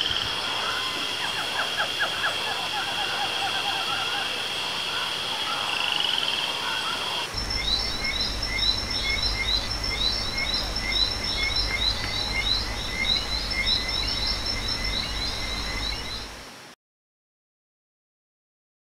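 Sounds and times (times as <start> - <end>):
insects trilling: 0.0 - 16.6
low rumble: 7.3 - 16.4.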